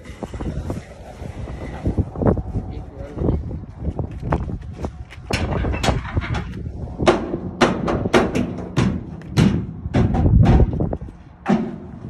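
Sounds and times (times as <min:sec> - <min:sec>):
tires thumping against tires: 0:03.8 - 0:12.0.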